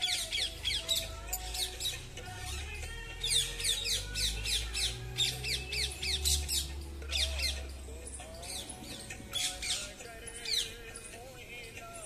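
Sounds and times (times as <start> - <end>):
parakeets screeching: 3.2 - 7.7, 8.4 - 10.9.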